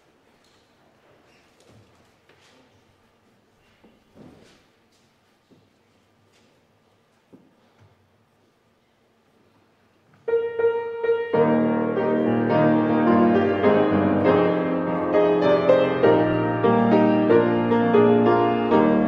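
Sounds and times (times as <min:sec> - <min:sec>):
piano playing hymn introduction: 0:10.3 - 0:19.0.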